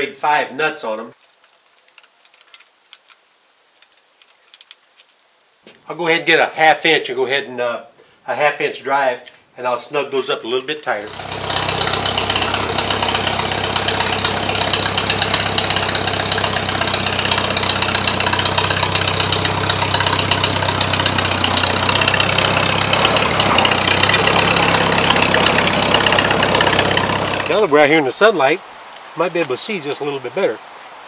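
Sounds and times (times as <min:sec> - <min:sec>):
tractor engine running: 0:11.1 - 0:27.7.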